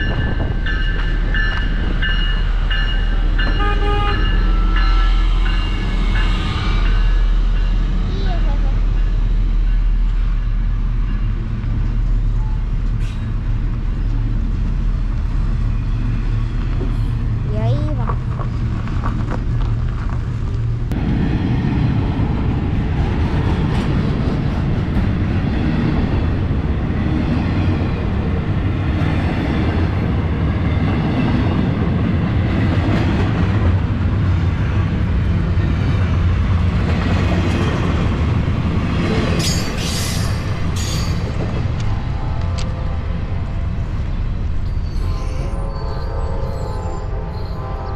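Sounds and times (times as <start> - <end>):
freight train rumbling past: 0.0 - 47.9.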